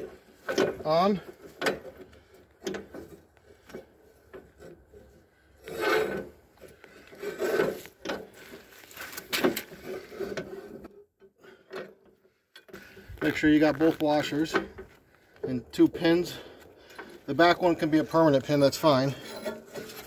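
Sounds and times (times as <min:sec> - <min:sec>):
metal clicks and knocks: 0:00.0 - 0:04.9, 0:09.3 - 0:16.1
metal scraping against frame: 0:00.0 - 0:12.0, 0:12.6 - 0:20.0.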